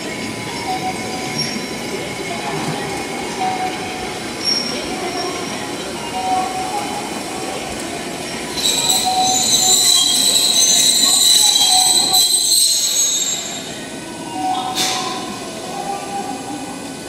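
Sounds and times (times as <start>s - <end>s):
tram wheels squealing on rails: 0.0s - 17.0s.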